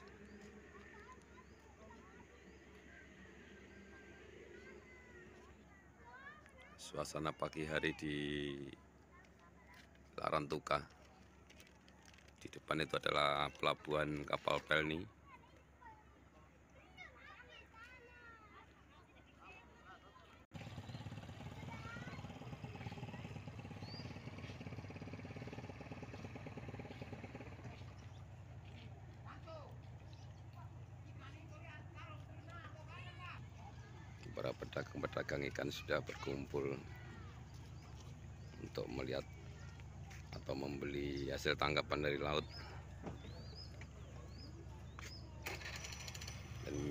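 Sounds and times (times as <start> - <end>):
engine running with fast pulse: 20.5 - 46.9.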